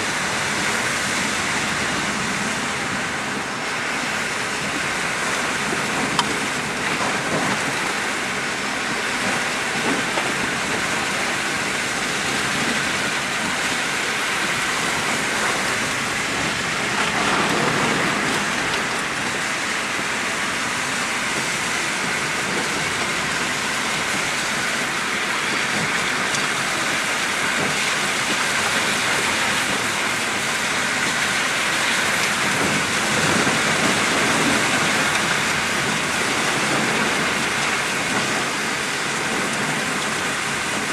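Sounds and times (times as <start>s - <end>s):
rain hissing on car: 0.0s - 40.9s
tyres on wet road: 0.0s - 40.9s.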